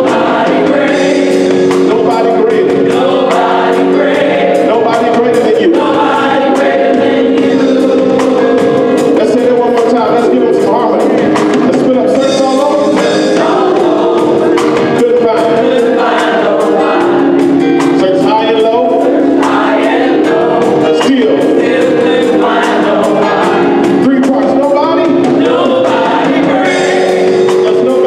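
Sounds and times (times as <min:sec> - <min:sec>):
gospel choir singing: 0:00.0 - 0:28.0
live band with drums bass organ: 0:00.0 - 0:28.0.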